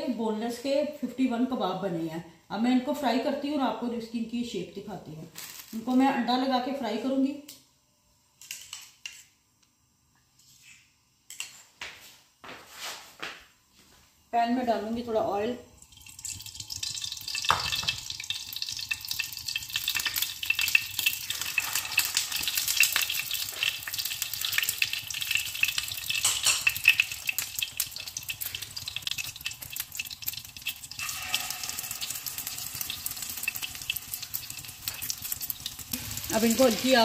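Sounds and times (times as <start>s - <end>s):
kebabs sizzling in hot oil: 5.3s - 6.2s, 15.7s - 37.0s.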